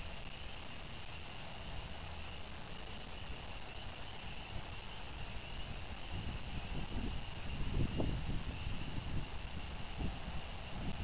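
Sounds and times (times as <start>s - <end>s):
steady hiss: 0.0s - 11.0s
wind buffeting microphone: 3.6s - 11.0s.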